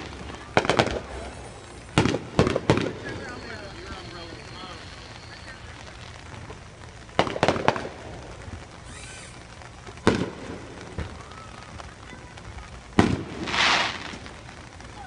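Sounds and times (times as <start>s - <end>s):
fireworks bangs: 0.0s - 15.0s.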